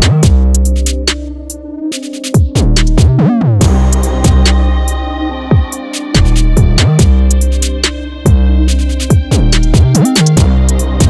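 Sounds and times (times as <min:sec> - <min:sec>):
electronic beat: 0:00.0 - 0:11.0
hi-hat ticks: 0:01.9 - 0:05.0, 0:05.6 - 0:11.0
deep sliding bass notes: 0:02.6 - 0:11.0.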